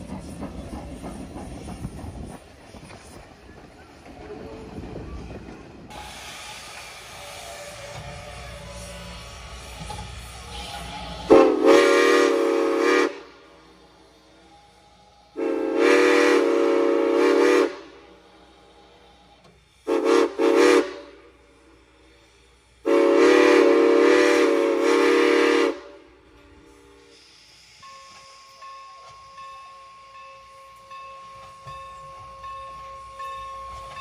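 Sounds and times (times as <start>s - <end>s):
steam whistle blasts: 5.9s - 13.4s, 15.3s - 18.0s, 19.8s - 21.2s, 22.8s - 26.1s.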